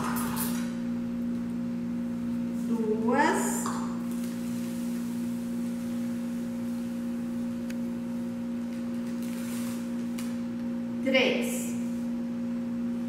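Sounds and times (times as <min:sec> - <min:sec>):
low-pitched hum: 0:00.0 - 0:13.0
paper bag rustling: 0:08.6 - 0:10.4.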